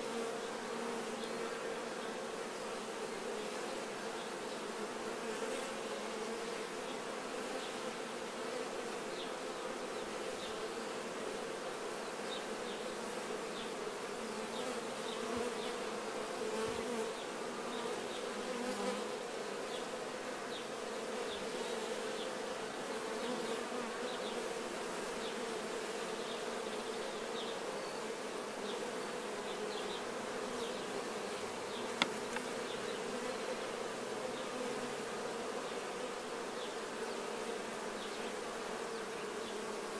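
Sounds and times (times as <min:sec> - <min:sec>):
honey bees buzzing: 0:00.0 - 0:39.9
sharp click: 0:32.0 - 0:32.5.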